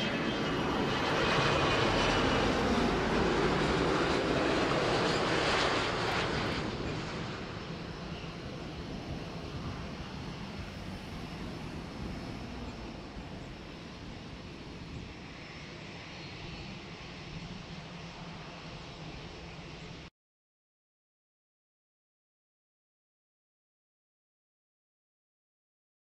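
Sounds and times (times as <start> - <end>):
jet engines at takeoff power: 0.0 - 20.1.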